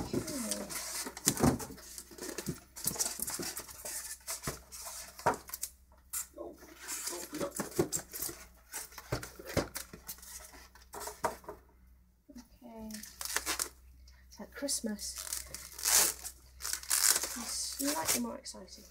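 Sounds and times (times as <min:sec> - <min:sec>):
foam packaging rubbing and scraping: 0:00.0 - 0:05.7, 0:06.6 - 0:09.0, 0:15.2 - 0:18.3.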